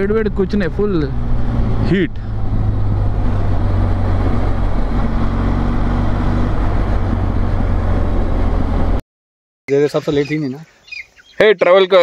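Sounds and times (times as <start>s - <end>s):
wind noise on microphone: 1.4s - 8.8s.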